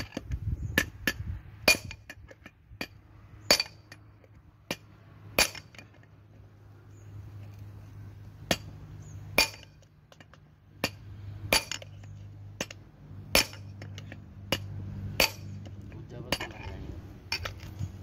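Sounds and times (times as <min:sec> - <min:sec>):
hammer striking steel punch: 0:14.5 - 0:15.5.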